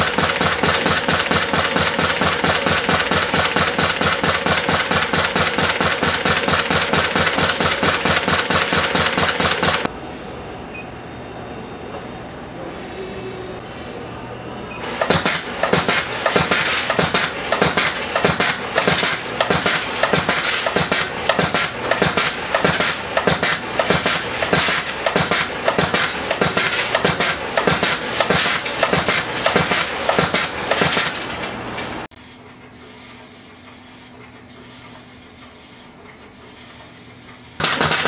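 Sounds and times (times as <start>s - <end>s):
pneumatic cutter strokes: 0.0s - 9.9s, 14.8s - 32.1s.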